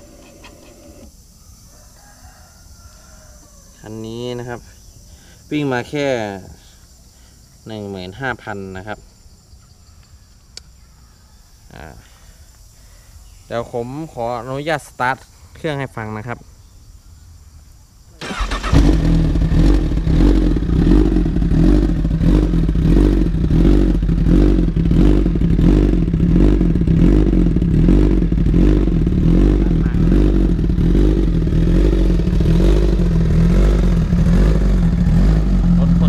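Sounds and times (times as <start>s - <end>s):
motorcycle engine starting and idling: 18.2s - 36.0s.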